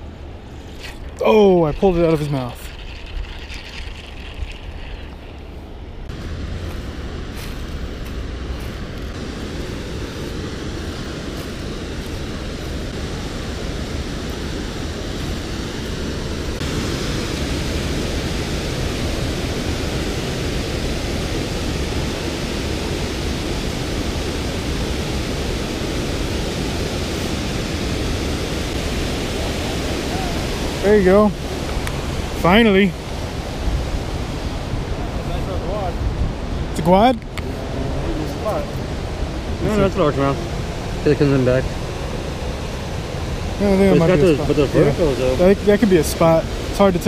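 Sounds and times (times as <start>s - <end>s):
water pouring over dam spillway: 0.8s - 5.4s.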